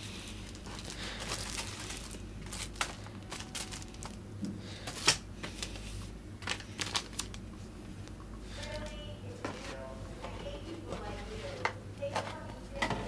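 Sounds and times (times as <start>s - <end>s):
plastic and papers rustling: 0.0s - 4.2s, 4.8s - 7.6s
steady low hum: 0.0s - 13.0s.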